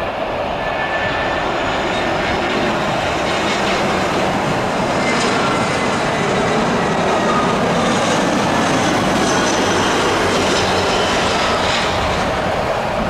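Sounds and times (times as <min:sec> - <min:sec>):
jet engines rushing with whine: 0:00.0 - 0:13.0.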